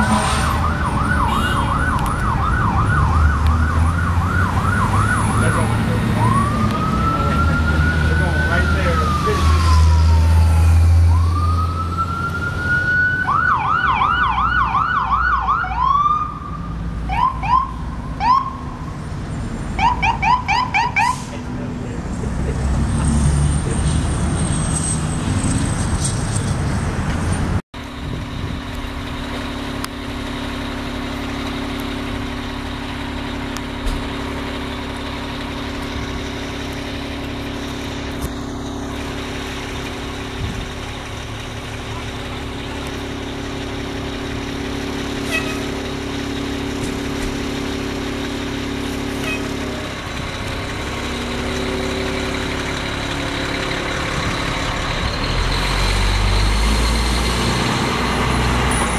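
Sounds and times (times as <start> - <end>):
electronic siren wailing: 0.0 - 18.6
engine rumble: 0.0 - 58.9.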